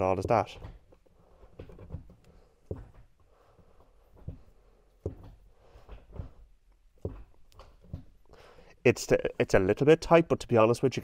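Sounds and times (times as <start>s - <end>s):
gear lever knocks and clicks: 4.2s - 6.4s, 7.0s - 8.2s.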